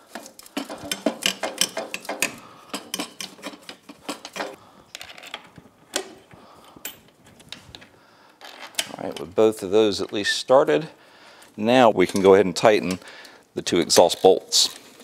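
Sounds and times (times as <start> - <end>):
metallic clicks and knocks: 0.1 - 7.9.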